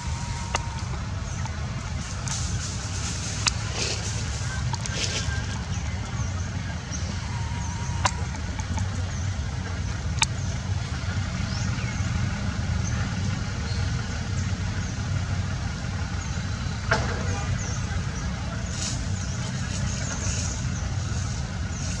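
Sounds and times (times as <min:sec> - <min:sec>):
sharp clicks: 0:00.0 - 0:06.2, 0:07.0 - 0:09.2
low outdoor rumble: 0:00.0 - 0:22.0.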